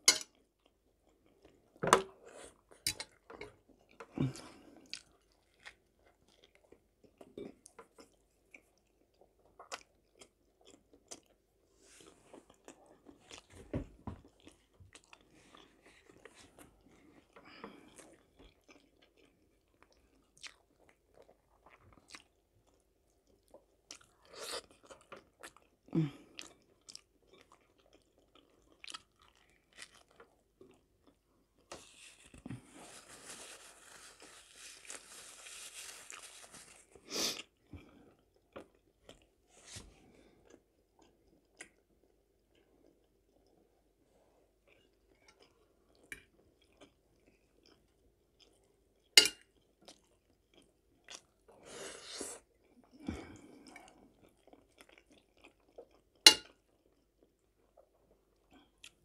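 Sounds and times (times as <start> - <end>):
person chewing food: 0.0 - 59.0.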